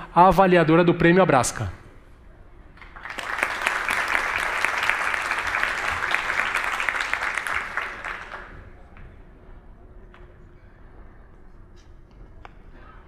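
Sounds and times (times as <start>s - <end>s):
audience applauding: 2.8s - 8.9s.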